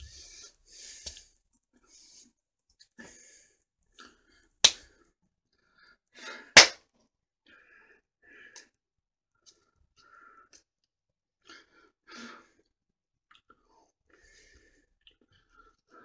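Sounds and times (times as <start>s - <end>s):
faint breaths: 0.0s - 2.4s, 3.0s - 6.6s, 13.6s - 16.0s
sharp hand slaps: 4.6s - 4.8s, 6.6s - 6.8s.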